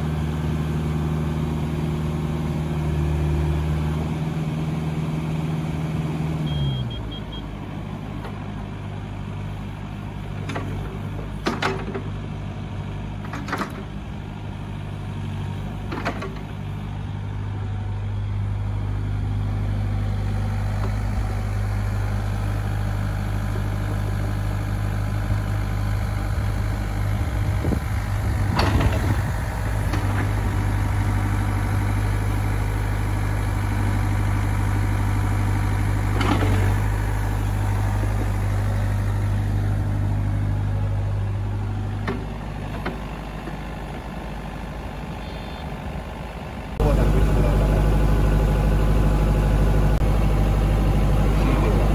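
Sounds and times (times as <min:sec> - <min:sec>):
excavator diesel engine running: 0:00.0 - 0:51.9
machine clunks: 0:28.5 - 0:29.2.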